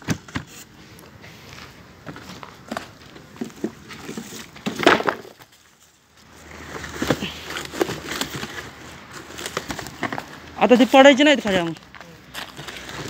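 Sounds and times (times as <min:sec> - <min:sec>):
wooden planks knocking and scraping: 0:02.0 - 0:05.7, 0:06.6 - 0:13.0.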